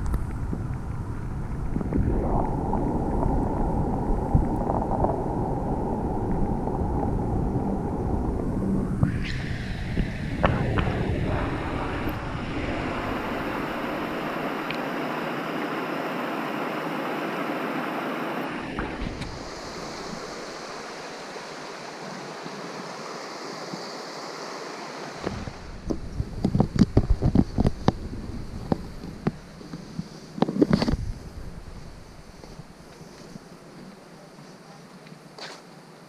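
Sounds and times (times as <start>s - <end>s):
waterfall splashing into pool: 9.6s - 24.0s.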